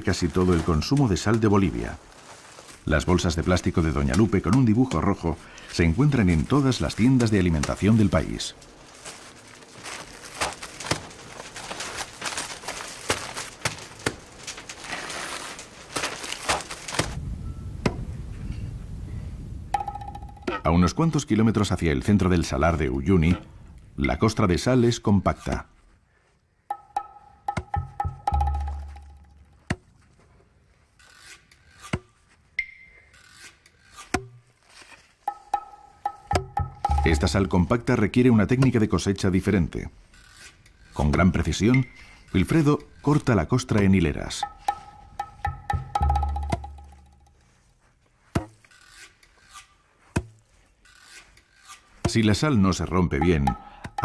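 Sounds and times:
plastic bags rustling and scraping: 0:00.0 - 0:17.2, 0:28.9 - 0:35.4, 0:46.8 - 0:52.0
sharp clicks and knocks: 0:35.2 - 0:37.5.

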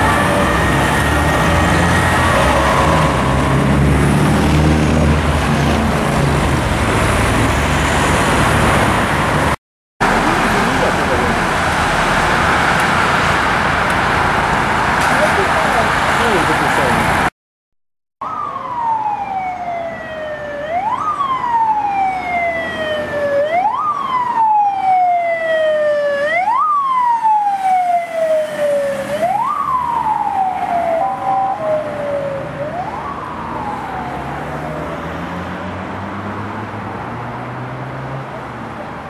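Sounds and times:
police siren wailing: 0:00.0 - 0:06.7, 0:18.2 - 0:35.5
low traffic rumble: 0:00.0 - 0:17.3, 0:18.2 - 0:39.0.

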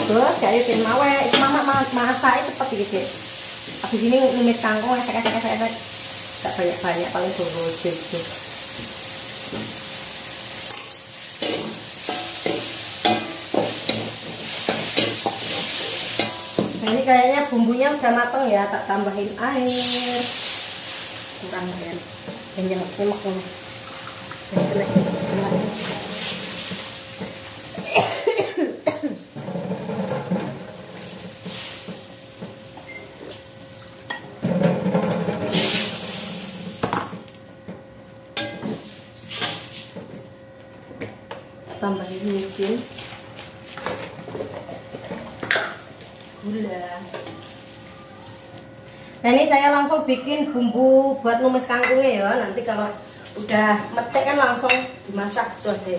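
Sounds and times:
food sizzling in oil: 0:00.0 - 0:28.0, 0:29.2 - 0:40.6, 0:41.8 - 0:55.9
spatula scraping a wok: 0:19.7 - 0:21.1, 0:24.5 - 0:27.4, 0:29.3 - 0:32.0.

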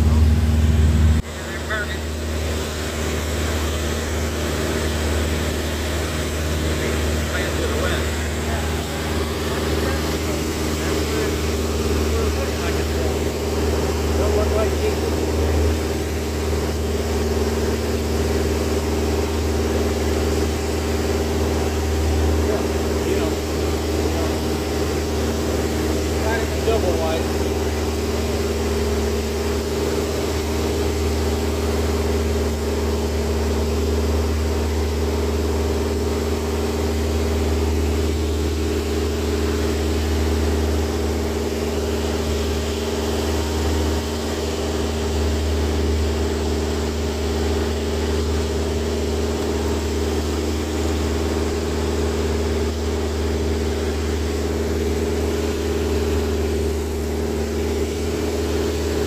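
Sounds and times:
aircraft engine and propeller hum: 0:00.0 - 0:59.0.

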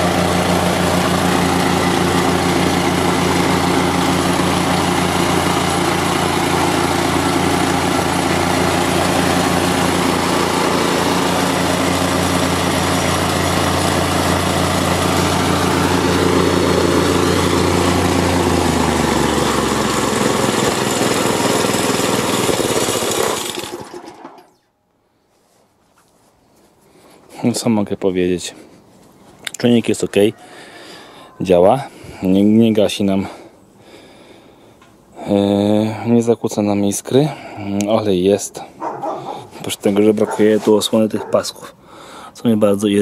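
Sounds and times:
small petrol engine running: 0:00.0 - 0:24.6.

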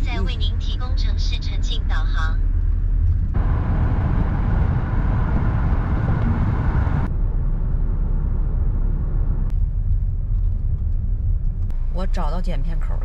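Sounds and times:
car engine and tyre rumble: 0:00.0 - 0:13.0
wind and tyre hiss: 0:02.4 - 0:07.5.

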